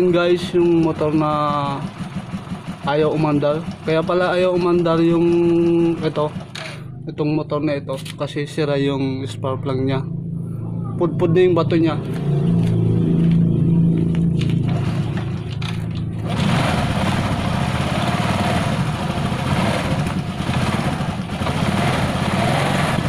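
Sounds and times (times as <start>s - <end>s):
motorcycle engine running: 0.0s - 7.1s, 10.0s - 23.0s.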